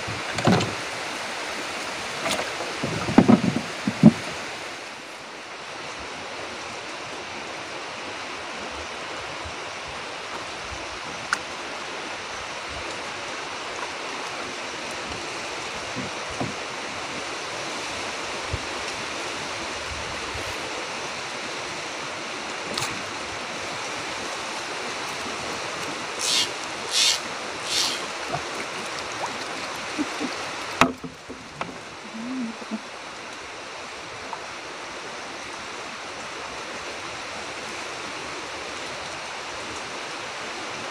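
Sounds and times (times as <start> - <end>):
wind and water hiss: 0.0 - 40.9
short high sharp sounds: 26.2 - 28.1.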